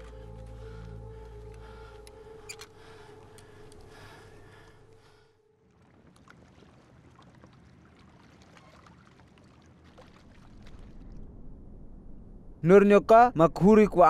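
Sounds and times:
lake water lapping: 2.9 - 11.2
small water splashes: 5.6 - 11.2.

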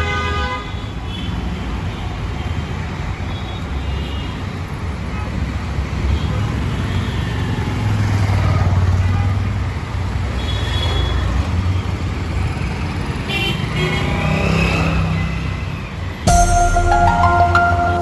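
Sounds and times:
street traffic rumble: 0.0 - 16.3
bright musical sting: 16.3 - 18.0.

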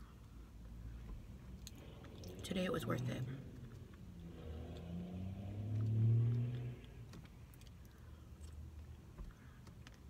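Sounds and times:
quiet chewing: 6.3 - 10.0.

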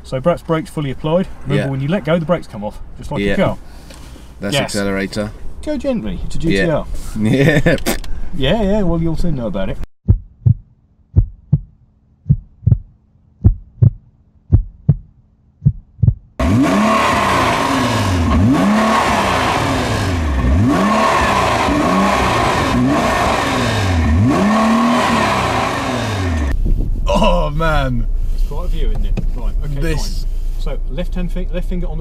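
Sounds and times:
heartbeat thumps: 10.0 - 16.4, 26.5 - 27.2
car engine revving: 16.4 - 32.0.

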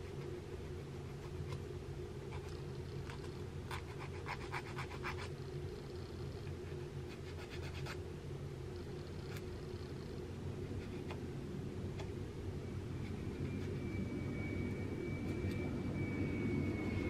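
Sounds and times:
comb scratching strokes: 0.0 - 8.0, 10.6 - 11.2
steady low hum: 0.0 - 17.0.

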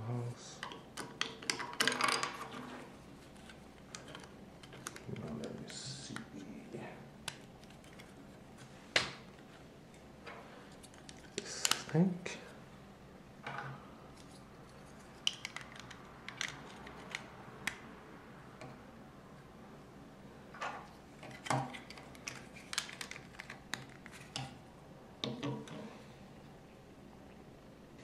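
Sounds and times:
plastic bricks clicking and rattling: 21.8 - 24.4.

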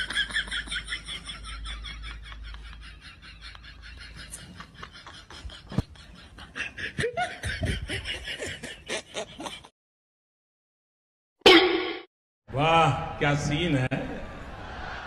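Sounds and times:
laughter: 0.0 - 9.8, 14.1 - 15.0.

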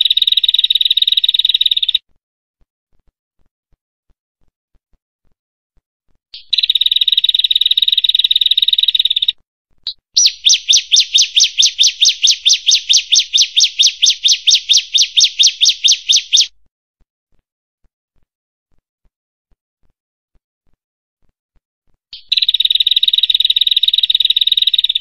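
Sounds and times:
bird dry trill: 9.9 - 16.5
bird falling whistled notes: 10.2 - 16.5.

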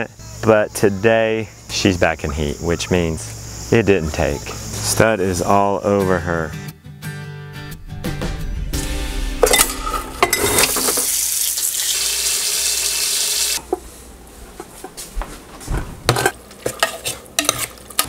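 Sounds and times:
dishes clinking: 9.4 - 11.2, 16.1 - 18.0
pots and dishes clattering: 9.4 - 11.2, 16.1 - 18.0.

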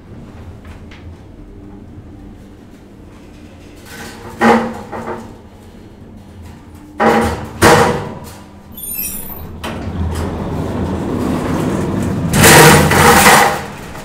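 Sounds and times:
elevator doors sliding open: 8.2 - 14.0.

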